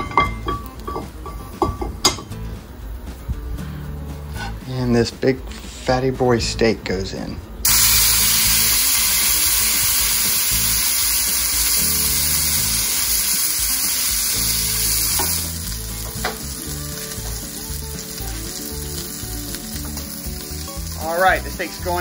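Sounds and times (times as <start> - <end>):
steak sizzling in butter: 7.6 - 22.0.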